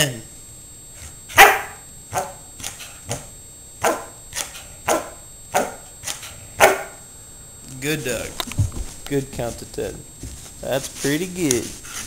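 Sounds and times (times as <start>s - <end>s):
dog barking: 1.3s - 2.8s, 3.8s - 5.9s, 6.6s - 7.0s.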